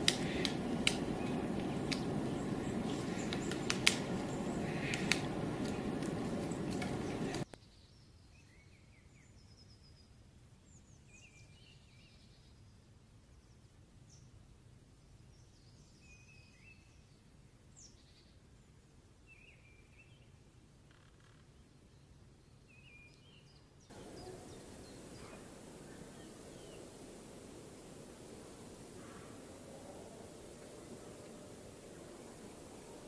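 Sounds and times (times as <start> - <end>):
woodpecker tapping on bark: 0.0 - 7.4
loud steady hiss: 0.0 - 7.5, 23.9 - 33.0.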